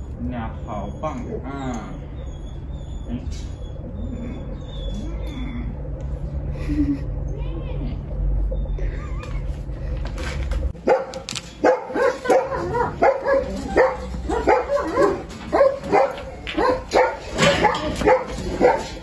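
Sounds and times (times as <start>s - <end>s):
dog barking: 10.8s - 19.0s.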